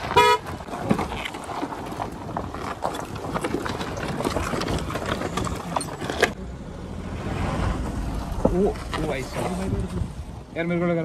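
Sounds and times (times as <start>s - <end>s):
tyres crunching over stones: 0.0s - 6.4s
diesel engine rumble: 0.0s - 11.0s.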